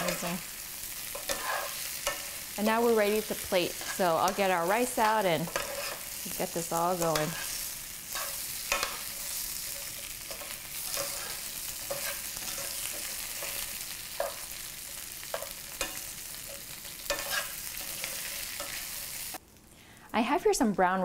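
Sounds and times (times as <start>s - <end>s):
shrimp sizzling in a pan: 0.0s - 19.5s
metal tongs clicking on pan: 8.1s - 9.1s.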